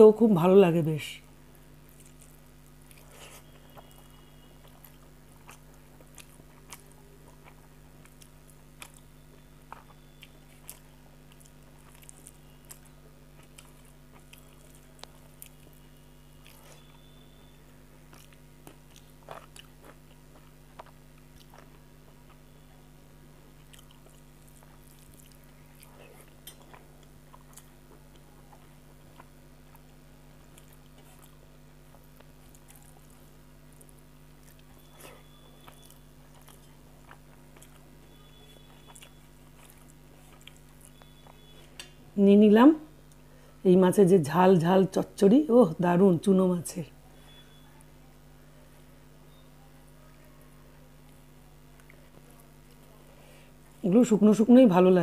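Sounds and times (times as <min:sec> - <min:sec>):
steady low hum: 0:00.0 - 0:55.0
person chewing food: 0:01.8 - 0:42.0, 0:51.1 - 0:53.8.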